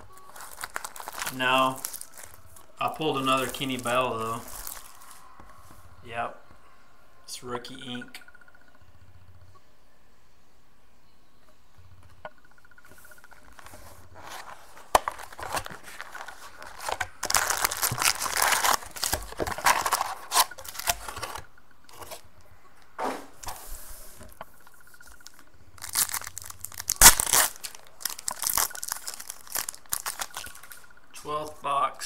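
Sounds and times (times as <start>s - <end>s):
wrappers rustling and crinkling: 0.0s - 5.4s, 13.5s - 22.2s, 24.8s - 31.0s
wrapper tearing open: 0.3s - 5.2s, 14.2s - 21.4s, 25.2s - 30.8s.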